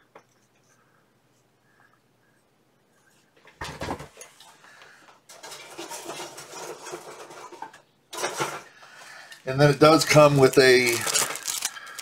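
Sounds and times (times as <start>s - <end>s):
plastic packaging rustling and clattering: 5.3s - 12.0s.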